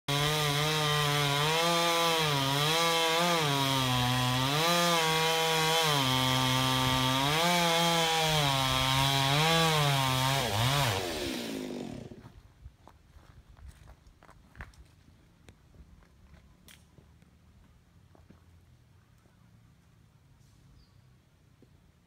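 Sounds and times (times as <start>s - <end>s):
chainsaw cutting wood: 0.1s - 12.4s.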